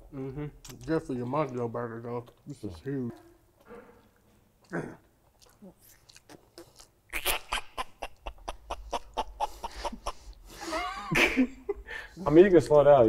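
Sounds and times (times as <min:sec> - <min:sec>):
man gagging and dry-heaving: 0:04.6 - 0:05.2, 0:06.2 - 0:11.4.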